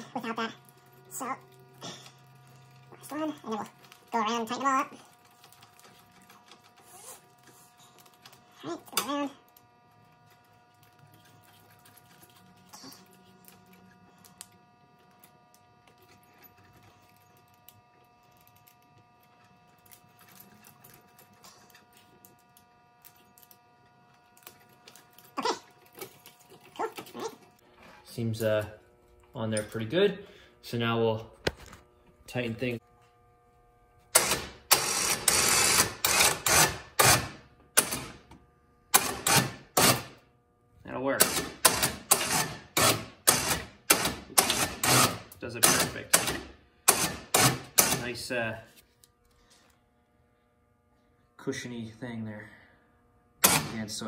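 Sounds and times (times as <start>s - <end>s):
winch motor bursts: 34.1s - 38.2s, 41.2s - 48.0s.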